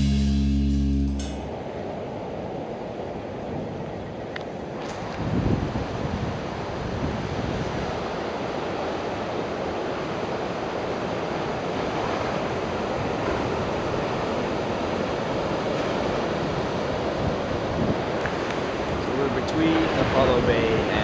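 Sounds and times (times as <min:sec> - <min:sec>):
ocean surf breaking: 0:04.7 - 0:21.0
wind on microphone: 0:04.8 - 0:08.4, 0:11.8 - 0:21.0.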